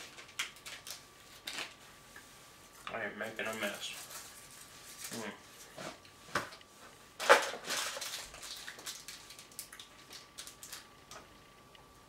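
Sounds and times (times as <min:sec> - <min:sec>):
plastic wrapper crinkling: 0:00.0 - 0:01.8, 0:03.2 - 0:05.4, 0:07.2 - 0:11.3.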